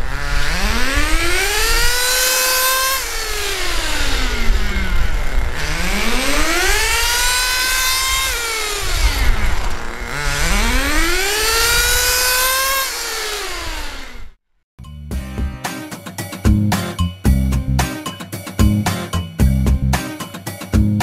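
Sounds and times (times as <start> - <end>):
model engine revving: 0.0 - 14.4.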